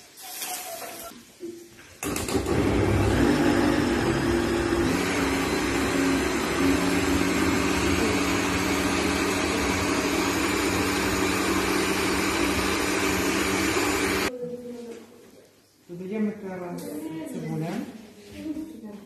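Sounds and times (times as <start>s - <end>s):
blender motor running: 2.0s - 14.3s.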